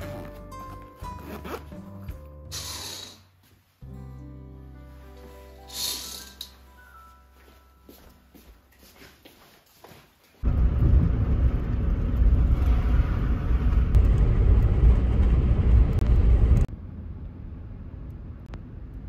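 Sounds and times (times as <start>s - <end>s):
car road and engine rumble: 10.4s - 19.0s.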